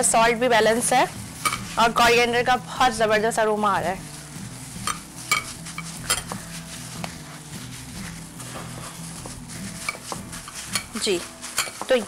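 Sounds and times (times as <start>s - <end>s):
hands mashing food squelching: 4.7s - 12.0s.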